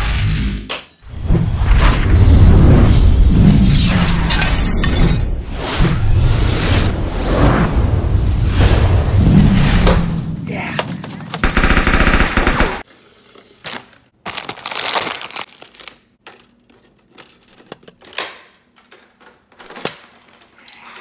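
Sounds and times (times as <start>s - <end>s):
rapid-fire shots: 11.4s - 12.8s.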